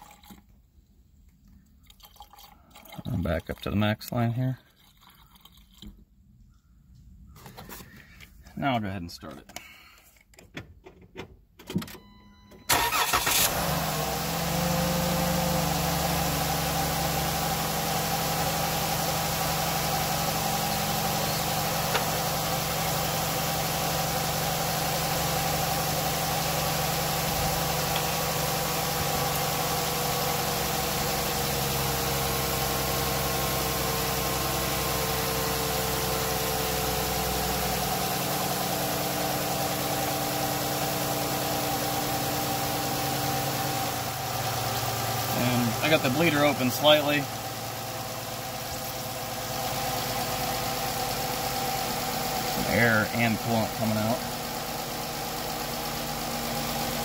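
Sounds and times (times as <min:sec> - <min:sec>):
van engine cranking and starting: 0:09.6 - 0:57.0
engine idling: 0:12.7 - 0:57.0.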